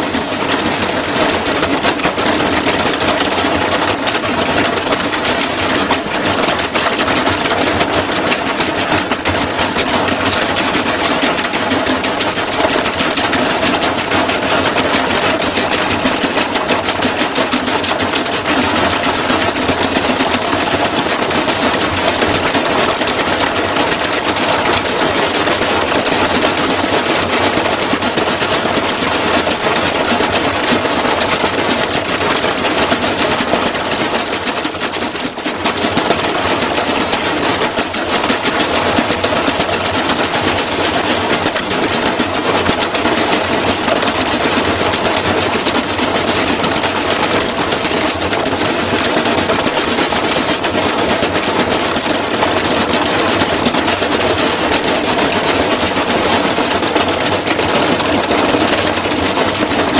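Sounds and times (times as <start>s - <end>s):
washing machine hammering and rattling: 0.0s - 59.9s
washing machine motor running: 0.0s - 59.9s.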